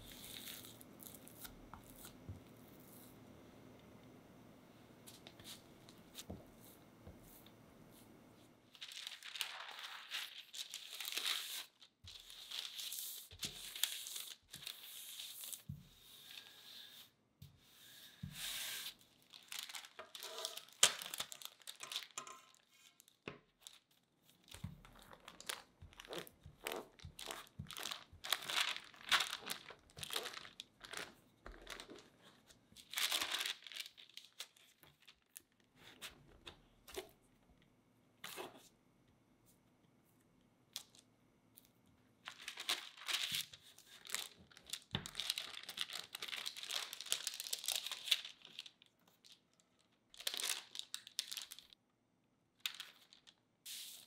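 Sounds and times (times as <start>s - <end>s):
parchment paper crinkling: 5.1s - 16.7s, 18.2s - 37.1s, 41.6s - 51.8s, 52.6s - 54.0s.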